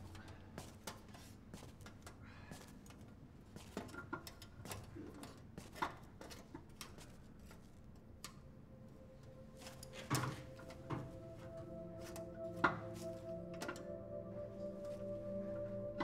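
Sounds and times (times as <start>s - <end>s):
soft held music chord: 8.1s - 16.0s.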